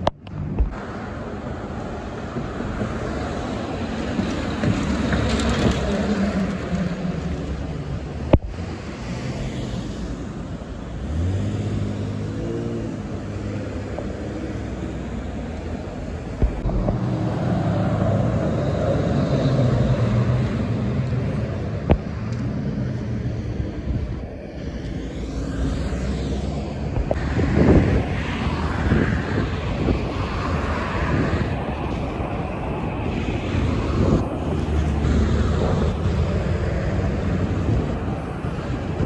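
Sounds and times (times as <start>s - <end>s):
cars and trucks passing: 0.0s - 39.0s
vehicle accelerating away: 10.9s - 15.0s.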